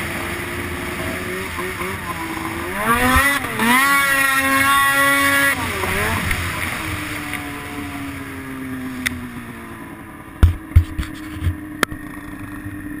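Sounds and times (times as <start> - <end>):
snowmobile engine running: 0.0 - 13.0
loud thumps and knocks: 10.4 - 11.6.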